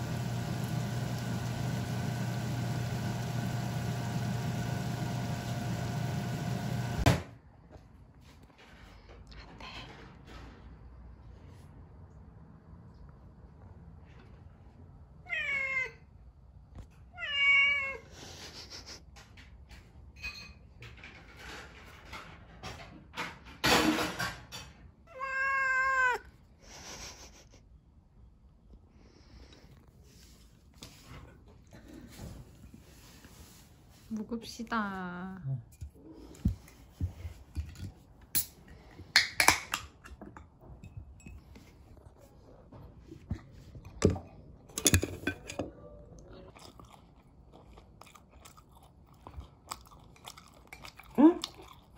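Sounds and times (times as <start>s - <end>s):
cat meowing: 15.3s - 16.0s, 17.2s - 18.0s, 25.1s - 26.3s.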